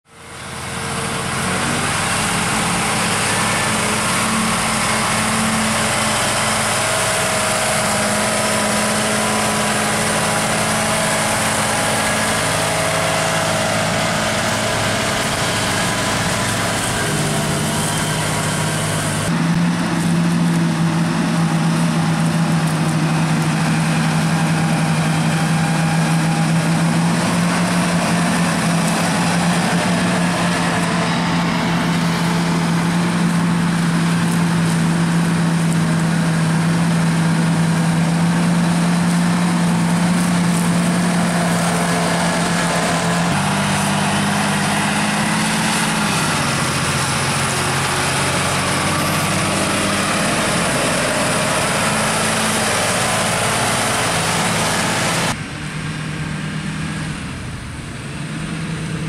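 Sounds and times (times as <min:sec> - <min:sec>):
tractor diesel engines under load: 0:00.0 - 0:59.0.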